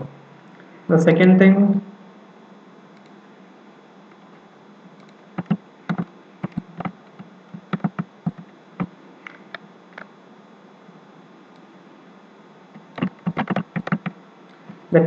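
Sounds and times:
mouse and keyboard clicks: 7.6s - 8.5s, 12.8s - 14.2s.

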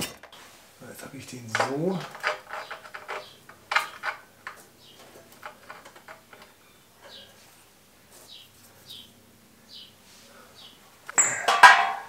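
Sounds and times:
metal parts clicking and knocking: 1.5s - 6.6s.

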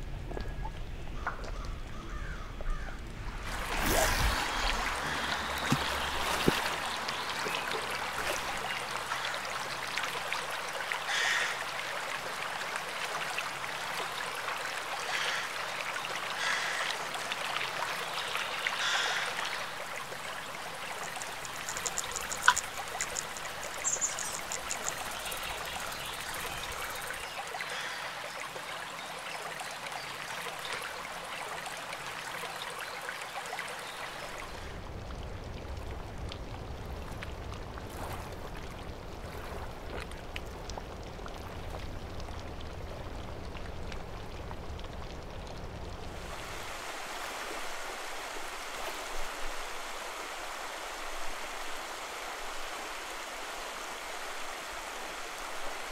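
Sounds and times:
river water running: 0.0s - 55.9s
rapid high ticking: 20.6s - 27.2s.

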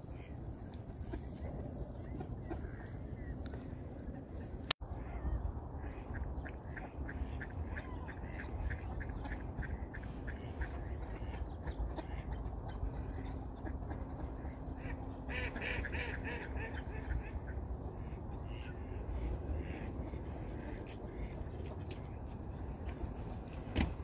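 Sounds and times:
low wind rumble: 0.0s - 24.0s
ducks quacking: 4.9s - 23.2s.

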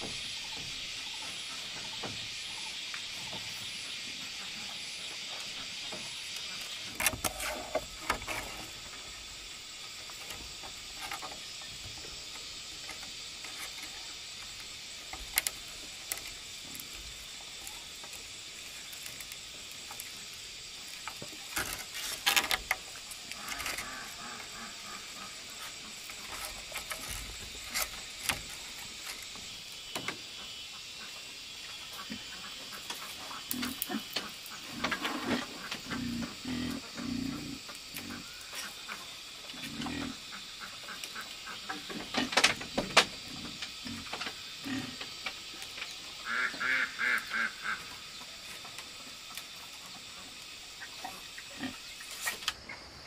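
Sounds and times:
insects chirring: 0.0s - 53.0s
bamboo poles knocking and rattling: 5.4s - 9.1s, 9.9s - 17.0s, 20.8s - 24.6s, 25.6s - 30.3s, 41.7s - 44.4s.

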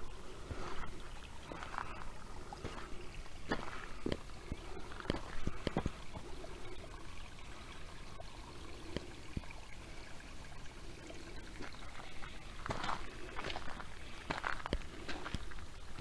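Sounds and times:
creek water trickling over rock: 0.0s - 16.0s
footsteps crunching: 3.5s - 4.2s, 12.6s - 15.6s.

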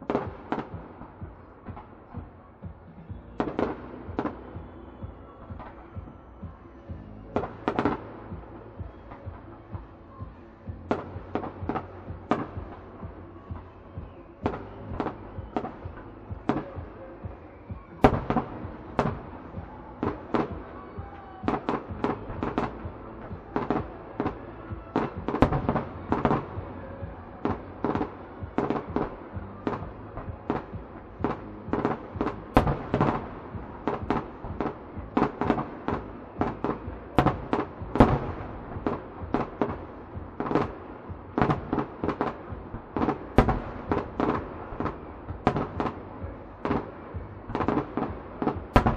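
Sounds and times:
fireworks bursting bangs: 0.0s - 48.9s
fireworks crackle: 10.9s - 48.9s.

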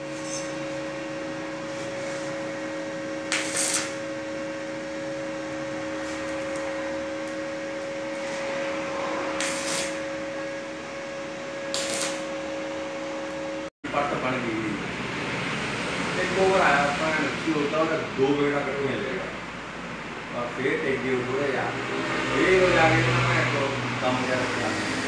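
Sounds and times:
two-tone electrical hum: 0.0s - 24.7s
welding torch arc hissing: 1.6s - 4.4s, 5.2s - 10.2s, 11.7s - 12.4s.

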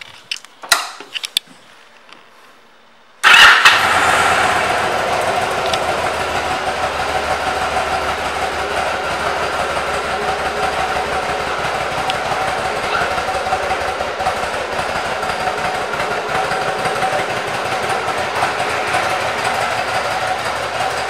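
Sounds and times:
motorcycle engine starting and idling: 3.2s - 21.0s.

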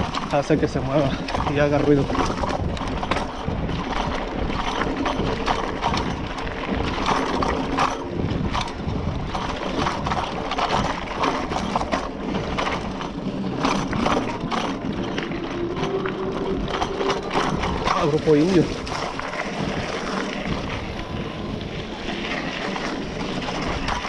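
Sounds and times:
bike frame rattling: 0.0s - 24.0s
tyres rumbling on gravel: 0.0s - 24.0s.

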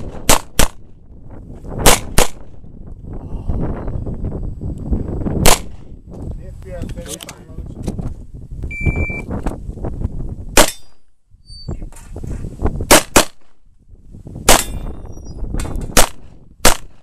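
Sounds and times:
handgun shots: 1.8s - 2.4s, 5.4s - 5.8s, 10.6s - 11.0s, 14.5s - 14.9s, 15.6s - 17.0s.

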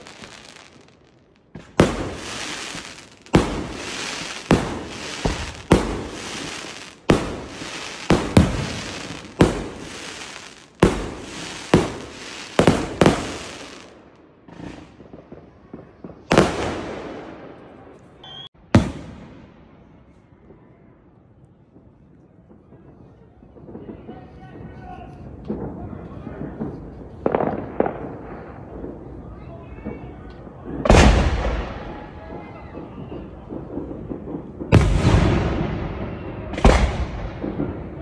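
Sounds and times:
firework shells bursting: 0.0s - 15.0s
firework crackling: 0.0s - 17.3s, 30.5s - 38.0s.

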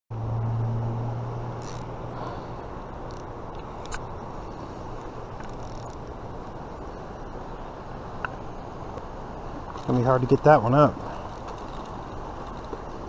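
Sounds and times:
passing vehicle hum: 0.1s - 13.0s
fishing reel clicking: 1.6s - 1.9s, 5.4s - 6.0s.

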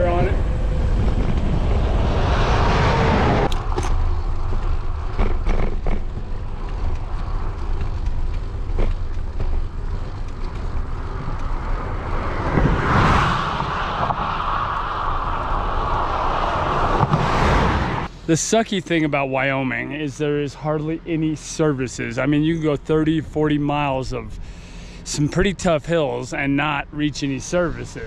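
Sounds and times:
wind buffeting microphone: 0.0s - 18.1s
passing vehicle tyre noise: 0.0s - 24.8s.

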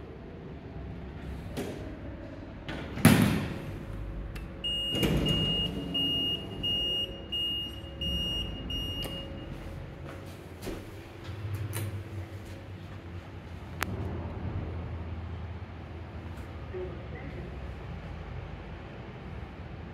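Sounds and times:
short high beeps: 4.6s - 9.5s.

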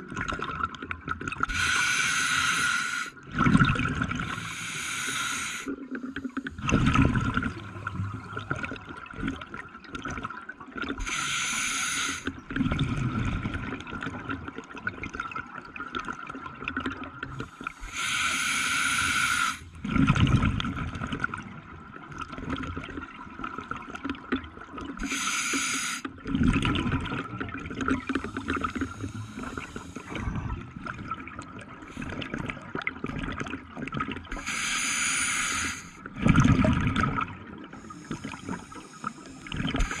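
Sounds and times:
regulator air hiss: 1.5s - 3.1s, 4.5s - 5.7s, 11.0s - 12.3s, 17.8s - 19.6s, 25.0s - 26.1s, 28.2s - 30.2s, 34.4s - 36.0s
exhaled bubbles rushing: 3.2s - 4.5s, 6.5s - 11.0s, 19.8s - 21.5s, 26.2s - 34.4s, 36.1s - 40.0s.

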